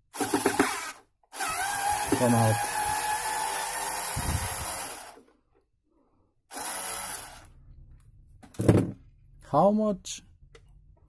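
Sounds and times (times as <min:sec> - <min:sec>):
cordless screwdriver motor: 0:00.2 - 0:05.2, 0:06.5 - 0:07.5.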